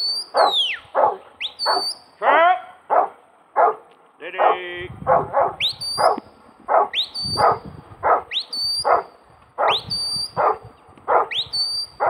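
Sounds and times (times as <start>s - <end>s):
rising whistle: 0.0s - 2.1s, 5.6s - 6.3s, 6.9s - 7.6s, 8.3s - 10.4s, 11.3s - 12.0s
dog barking: 0.3s - 11.5s.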